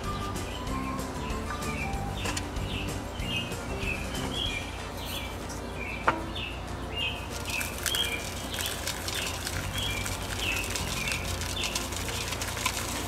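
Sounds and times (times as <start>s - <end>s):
songbird chirping: 0.0s - 12.8s
sand pouring through funnel: 7.3s - 13.0s.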